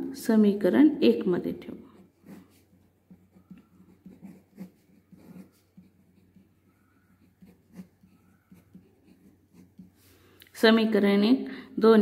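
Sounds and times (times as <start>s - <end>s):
pen scratching on paper: 1.8s - 10.1s.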